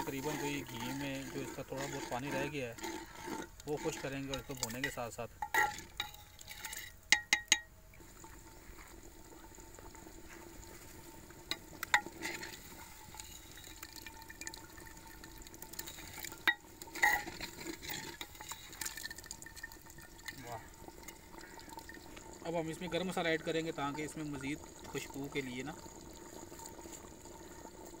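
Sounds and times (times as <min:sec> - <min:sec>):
curry sizzling: 0:00.0 - 0:28.0
ladle clinking against pot: 0:04.3 - 0:07.7.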